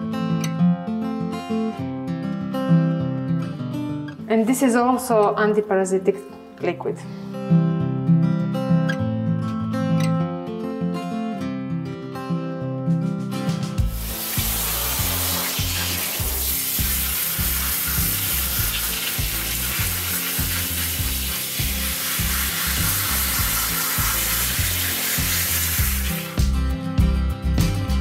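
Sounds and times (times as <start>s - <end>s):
background music with low bass: 12.8s - 28.0s
hose nozzle spraying water: 13.8s - 26.5s.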